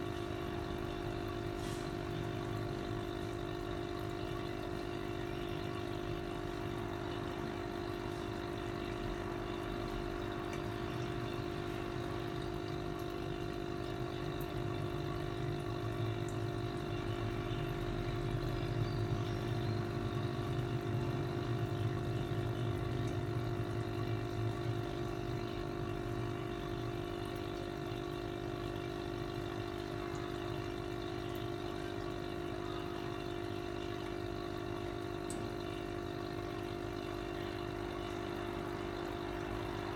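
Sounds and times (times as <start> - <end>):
air pump humming: 0.0 - 39.9.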